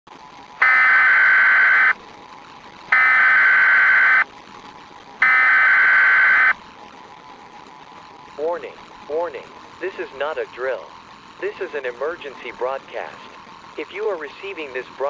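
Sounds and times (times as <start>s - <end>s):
digital data bursts: 0.6s - 2.0s, 2.9s - 4.2s, 5.2s - 6.6s.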